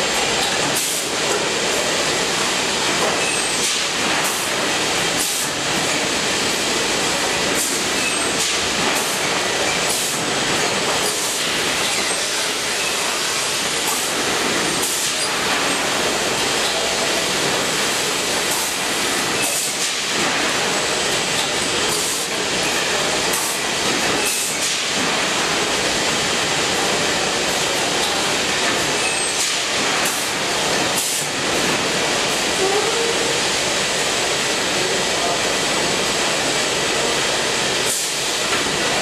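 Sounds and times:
conveyor machinery hiss and rumble: 0.0s - 39.0s.

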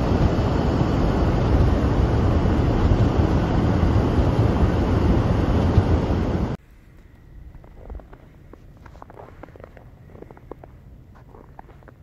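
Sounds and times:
car driving on snow: 0.0s - 6.6s.

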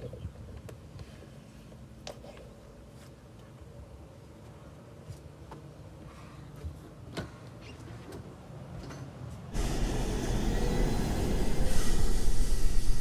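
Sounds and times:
loud rough rumbling: 9.6s - 13.0s.

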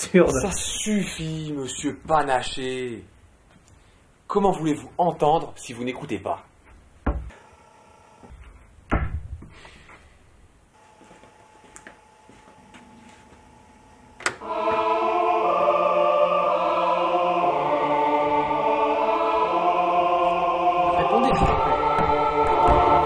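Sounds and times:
choral music with held chords: 12.8s - 23.0s.

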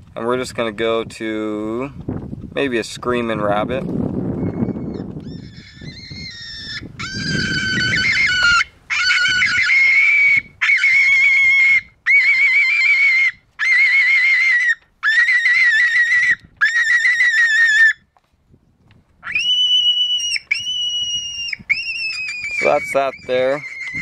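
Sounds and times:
rabbit distress screams from speaker: 4.9s - 18.0s, 19.2s - 24.0s.

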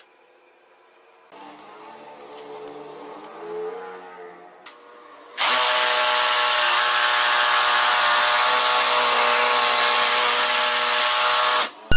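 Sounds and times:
jigsaw motor whine: 5.4s - 11.7s.

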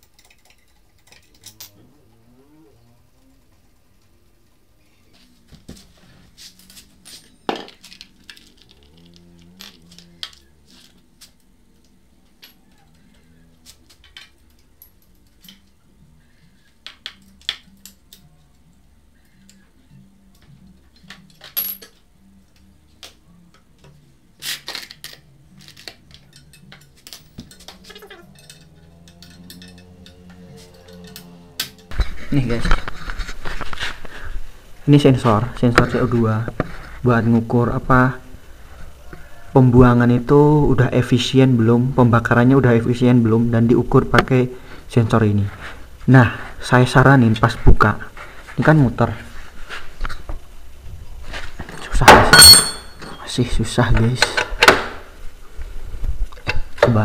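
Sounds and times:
metal tools clinking: 0.0s - 2.0s, 6.4s - 11.1s, 12.2s - 15.8s, 25.6s - 32.0s, 51.6s - 53.4s
quiet background music: 0.0s - 57.0s.

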